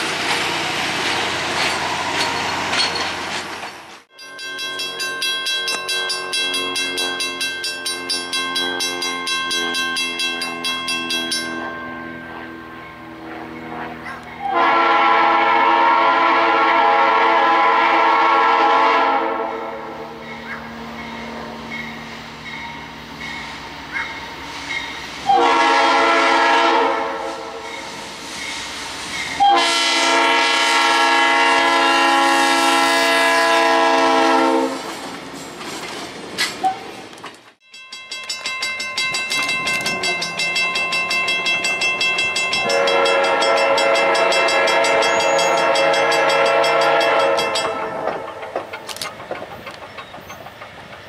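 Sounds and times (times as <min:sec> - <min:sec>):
locomotive air horn blasts: 0:13.2 - 0:20.2, 0:25.2 - 0:27.6, 0:29.4 - 0:34.9, 0:42.6 - 0:48.0.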